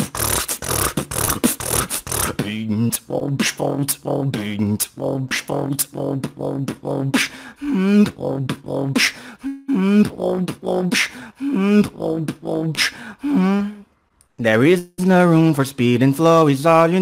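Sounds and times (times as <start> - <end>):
beatboxing drum sounds: 0.0 - 13.0
sliding sung vocal notes: 0.0 - 13.9.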